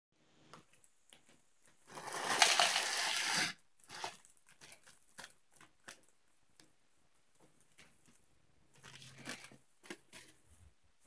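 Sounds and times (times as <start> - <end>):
dry noodles crushed: 1.8 - 6.2
plastic packet crinkling: 1.8 - 6.2, 7.6 - 10.4.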